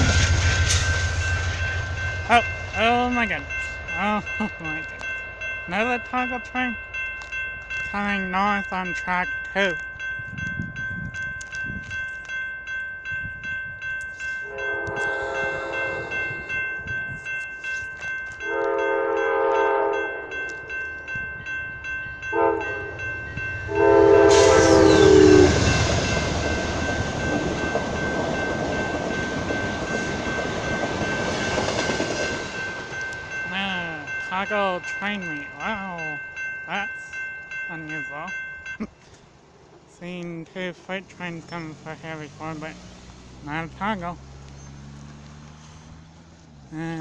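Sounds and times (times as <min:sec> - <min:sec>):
train wheels rushing on rail: 0:00.0 - 0:05.4, 0:22.6 - 0:34.6
train horn blasts: 0:14.4 - 0:16.4, 0:18.4 - 0:20.3, 0:22.3 - 0:23.1, 0:23.7 - 0:25.9.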